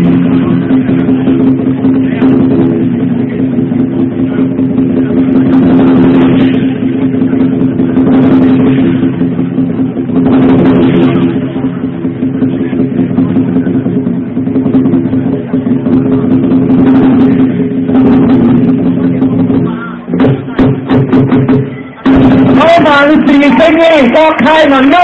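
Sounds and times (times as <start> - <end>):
cymbals: 0.0 - 25.0
drum: 0.0 - 25.0.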